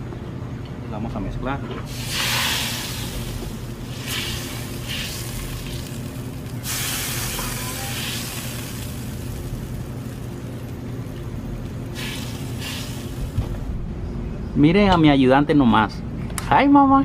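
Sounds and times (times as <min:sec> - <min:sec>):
gas burner hissing and humming: 0:01.7 - 0:14.2.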